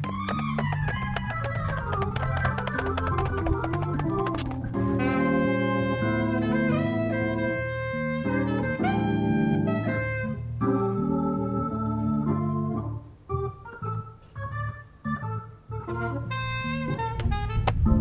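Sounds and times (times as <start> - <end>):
electric organ chords: 0.0 - 18.0
saxophone: 0.2 - 12.3, 15.7 - 18.0.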